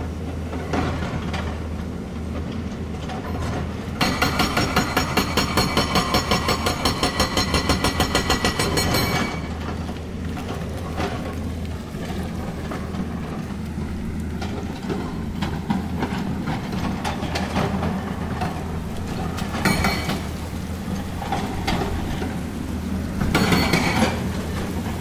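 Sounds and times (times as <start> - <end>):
excavator diesel engine droning: 0.0 - 25.0
rock clanking and knocking: 14.3 - 22.4, 23.2 - 25.0.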